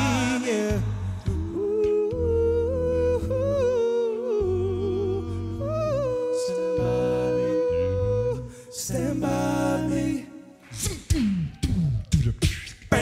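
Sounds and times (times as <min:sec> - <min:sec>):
deep sung bass line: 0:00.0 - 0:13.0.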